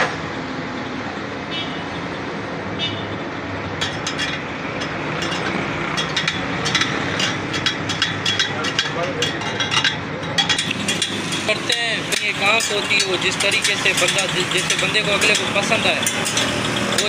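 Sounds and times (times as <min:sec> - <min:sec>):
metal spokes clinking: 0:03.8 - 0:17.0.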